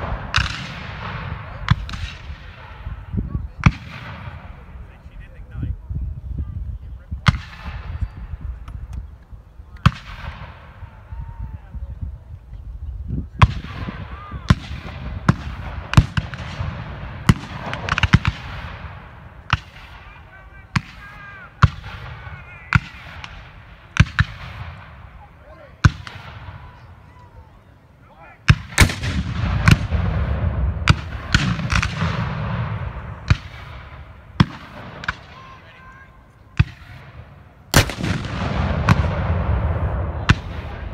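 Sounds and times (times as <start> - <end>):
musket shots: 0.0 - 2.6, 13.4 - 25.1, 28.5 - 35.4, 36.6 - 40.9
cannon fire booming: 0.0 - 4.8, 13.4 - 25.2, 28.4 - 35.4, 36.6 - 40.9.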